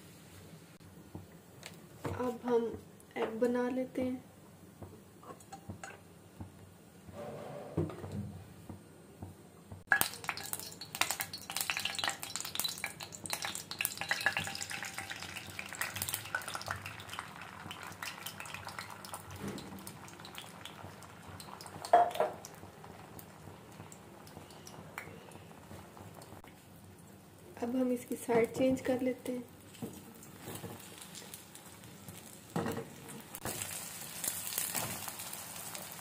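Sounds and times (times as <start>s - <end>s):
egg sizzling in hot oil: 9.9s - 26.5s, 28.1s - 36.0s.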